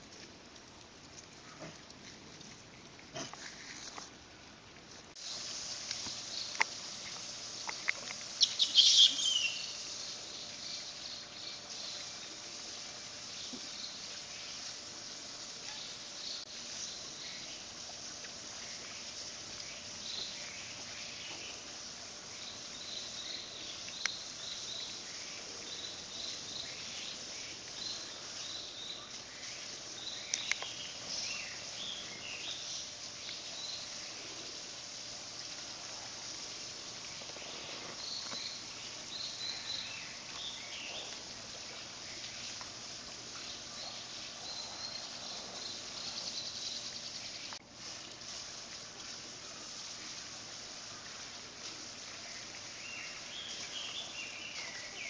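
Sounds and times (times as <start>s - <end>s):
outdoor background noise: 0.0s - 55.0s
faint high chirps: 7.7s - 12.1s.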